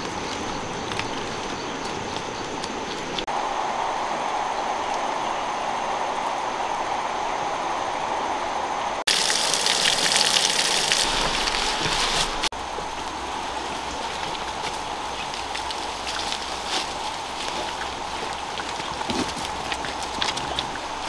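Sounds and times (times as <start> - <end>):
rushing water hiss: 0.0 - 21.0
water stream splashing on rocks: 9.0 - 21.0.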